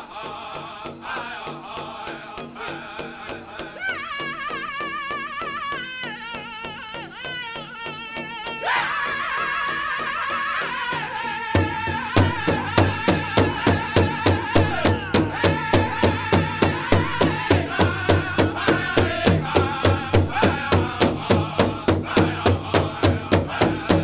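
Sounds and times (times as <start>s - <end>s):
group singing: 0.0s - 24.0s
bass drum beating: 11.6s - 24.0s.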